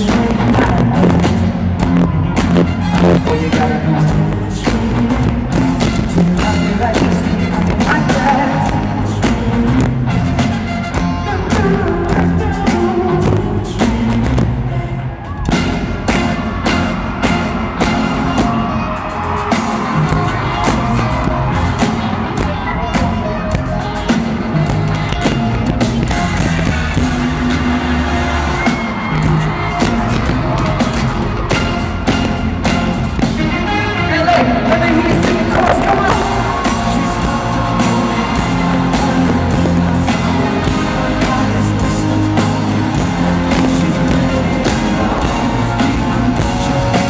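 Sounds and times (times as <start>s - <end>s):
brass: 0.0s - 14.1s, 14.8s - 47.0s
bass: 0.0s - 47.0s
drum beat: 15.5s - 47.0s.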